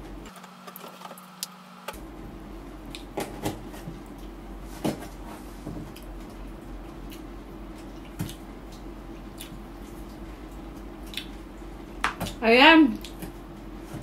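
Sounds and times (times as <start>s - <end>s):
low steady hum: 0.0s - 14.0s
chewing smacks: 7.0s - 11.4s.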